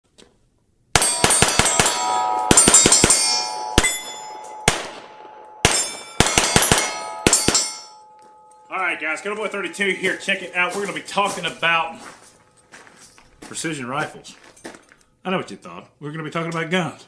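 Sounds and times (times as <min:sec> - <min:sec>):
handgun shots: 0:01.0 - 0:04.0, 0:04.6 - 0:07.8
bullets clanging on steel plates: 0:01.0 - 0:12.4.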